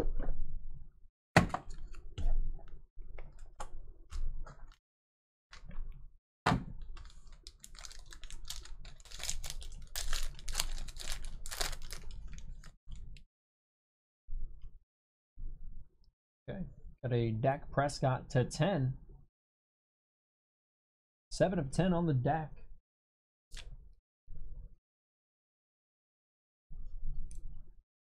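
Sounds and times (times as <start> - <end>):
foil wrapper crinkling: 7.0 - 12.7.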